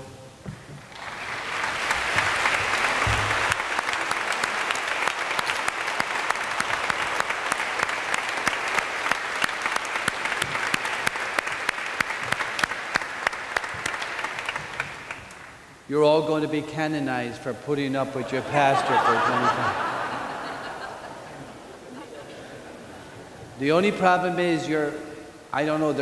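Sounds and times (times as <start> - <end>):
crowd applauding: 0.8 - 15.6, 18.3 - 23.2
sharp close claps: 0.8 - 15.6.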